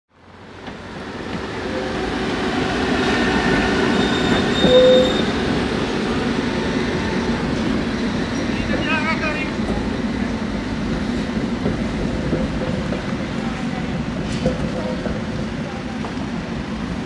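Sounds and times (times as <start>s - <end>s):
tram wheels rumbling on track: 0.2s - 17.0s
tram wheel squeal: 0.9s - 9.3s.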